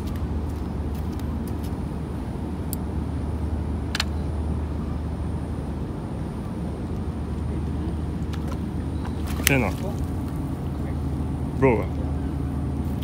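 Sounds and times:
low outdoor rumble: 0.0s - 13.0s
sharp clicks: 3.9s - 4.2s.

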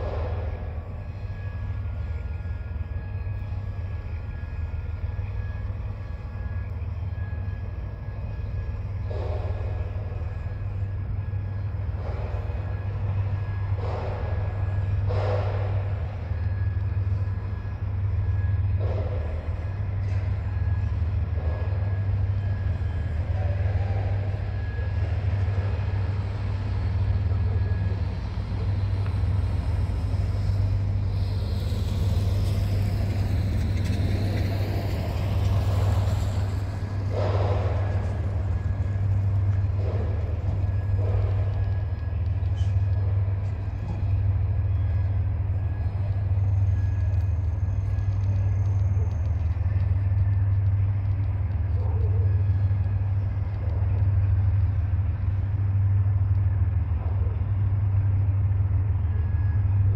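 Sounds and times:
diesel locomotive engine rumbling: 0.0s - 59.9s
road vehicle passing: 25.8s - 44.3s.

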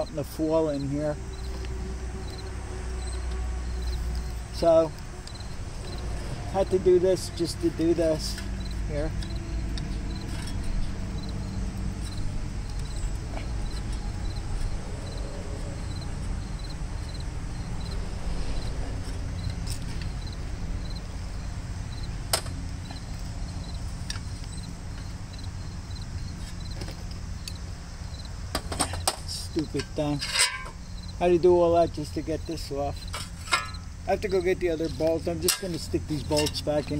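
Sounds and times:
insect chirping: 0.0s - 36.9s
low rumble: 8.4s - 26.3s.

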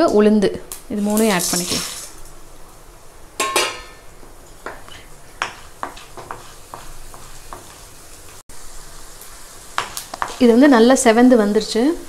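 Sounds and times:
oil sizzling with frying lentils: 0.0s - 12.0s
wooden spatula stirring and scraping: 4.3s - 8.4s, 9.4s - 10.6s.

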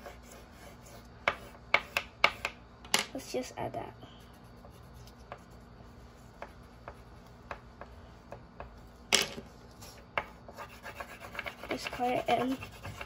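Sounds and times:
marker scratching on paper: 0.0s - 2.5s, 4.2s - 7.6s, 9.7s - 13.0s.

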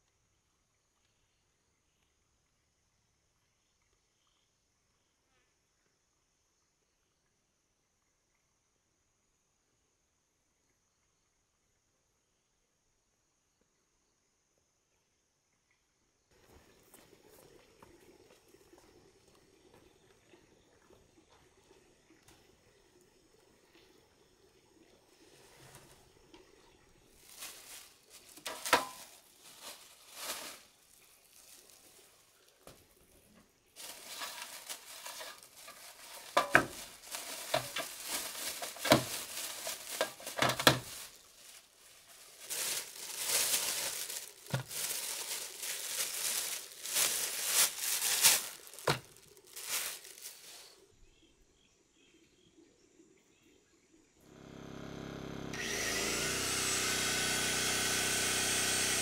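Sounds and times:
plastic bags crinkling: 27.1s - 32.5s, 33.8s - 50.8s.

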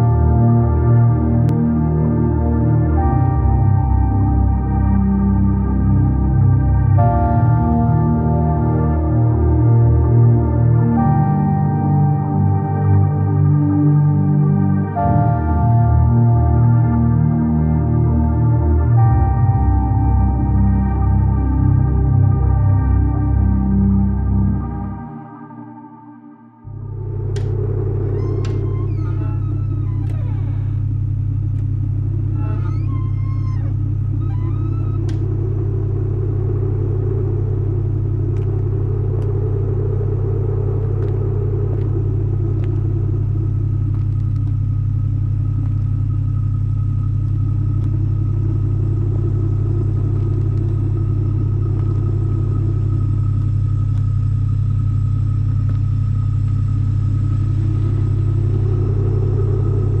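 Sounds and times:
heavy low rumbling drone: 0.0s - 60.0s
wooden door creaking: 27.2s - 35.8s.

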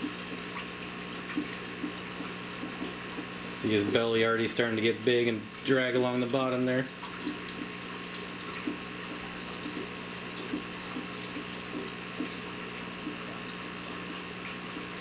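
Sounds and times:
aquarium pump hum: 0.0s - 15.0s
water running and splashing: 0.0s - 15.0s.

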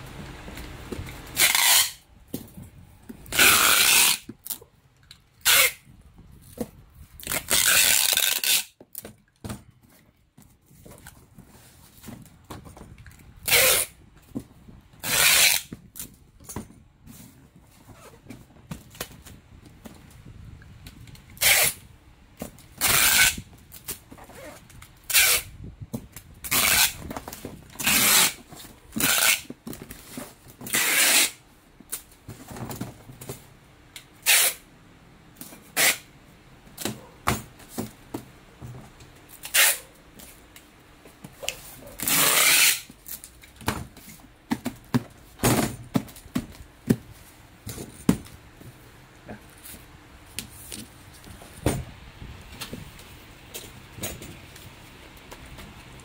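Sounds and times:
plastic rustling and scraping: 5.4s - 33.6s.

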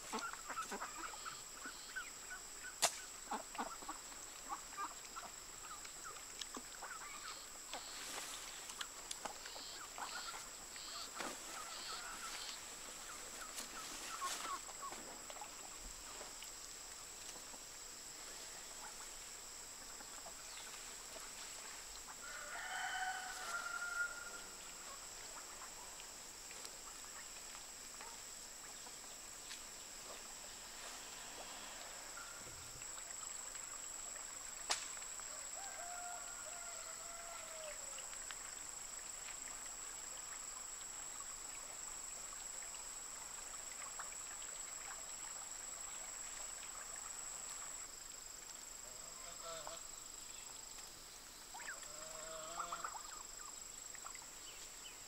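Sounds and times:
rooster crowing: 22.2s - 24.6s, 35.3s - 37.9s.

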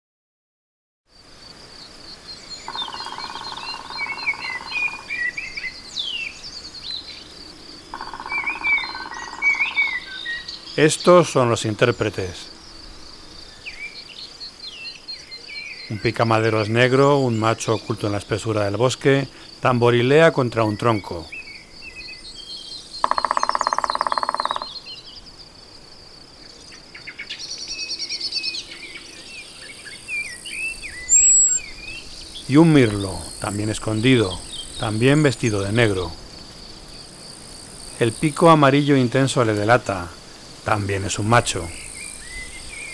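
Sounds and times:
blackbird singing: 2.2s - 7.3s, 7.9s - 12.3s, 13.5s - 25.2s, 26.4s - 36.2s, 40.7s - 42.9s
small bird song with trill: 2.2s - 7.4s, 8.0s - 11.1s, 12.8s - 18.2s, 20.1s - 25.3s, 26.4s - 36.1s, 41.1s - 42.9s
woodpecker drumming: 2.6s - 5.2s, 7.8s - 10.5s, 22.8s - 25.0s, 31.1s - 31.7s.

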